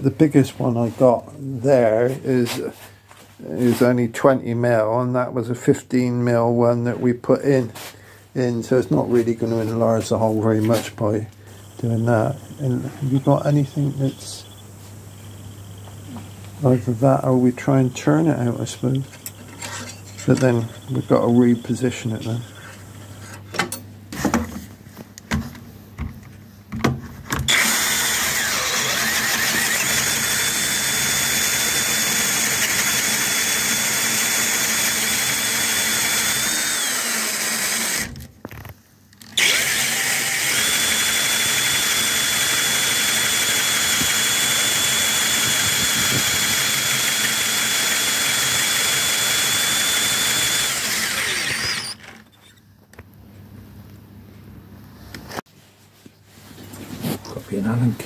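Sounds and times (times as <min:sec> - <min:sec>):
power drill boring into wood: 0:19.0 - 0:22.7, 0:27.5 - 0:38.2, 0:39.2 - 0:52.4.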